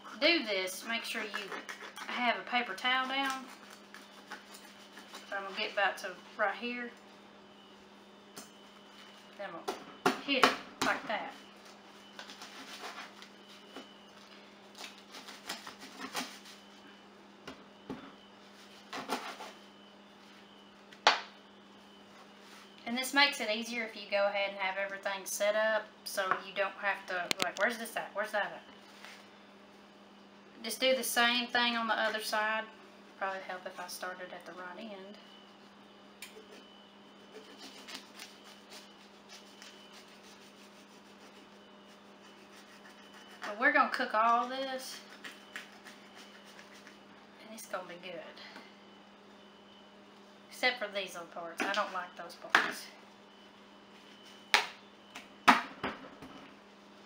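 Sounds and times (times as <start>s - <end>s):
low steady hum: 0.0s - 57.0s
knife scraping fish: 45.1s - 47.0s.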